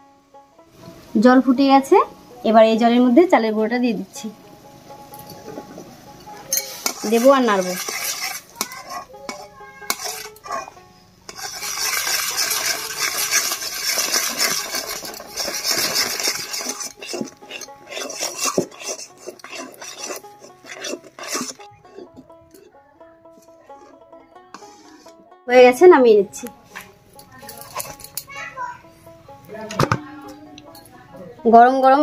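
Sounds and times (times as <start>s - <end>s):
metal spatula scraping wok: 4.9s - 25.8s, 26.6s - 28.4s
spatula clinks: 6.3s - 7.0s.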